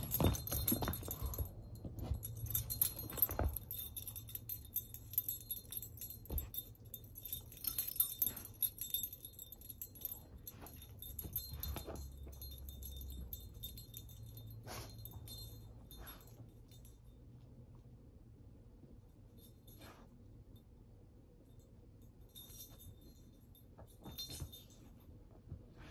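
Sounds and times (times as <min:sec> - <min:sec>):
dog collar tags jingling: 0:00.0 - 0:17.2, 0:22.1 - 0:25.0.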